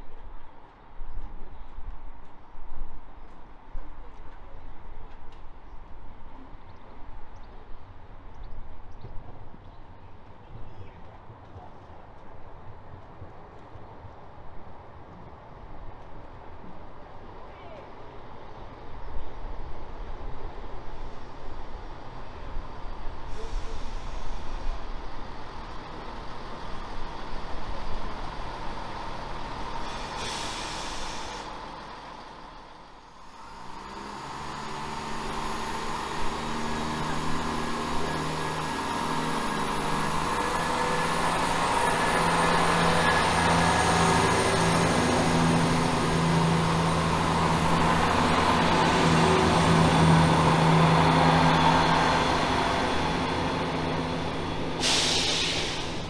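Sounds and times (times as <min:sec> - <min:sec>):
diesel train engine hum: 0:00.0 - 0:56.0
air hiss: 0:29.8 - 0:31.6, 0:54.8 - 0:56.0.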